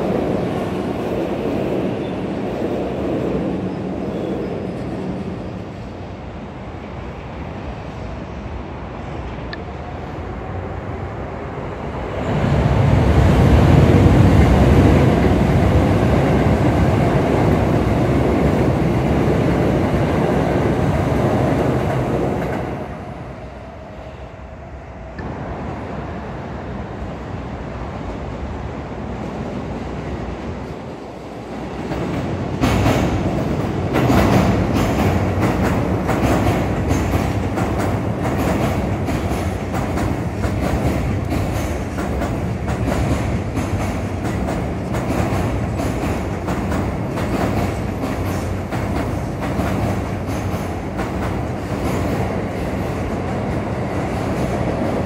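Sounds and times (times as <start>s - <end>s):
electric train passing: 0.0s - 55.0s
train wheels clacking over rail joints: 31.9s - 55.0s.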